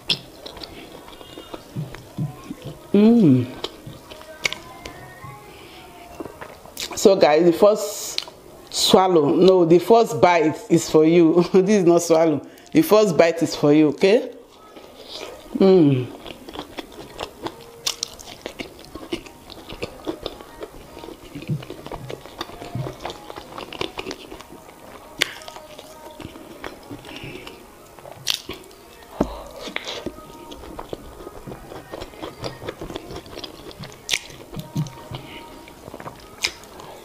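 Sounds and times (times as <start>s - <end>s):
close chewing: 0.0s - 7.1s, 14.3s - 37.0s.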